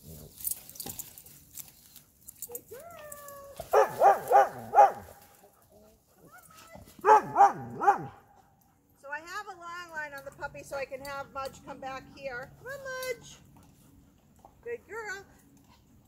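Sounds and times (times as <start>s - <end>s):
dog barking: 3.7s - 5.2s, 7.0s - 8.3s.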